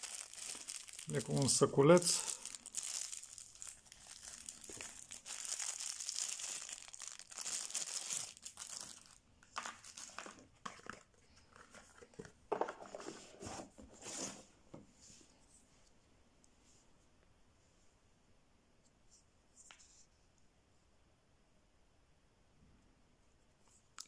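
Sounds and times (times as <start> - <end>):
plastic bag crinkling: 0.0 - 13.0
cloth pouch rustling: 2.4 - 11.0.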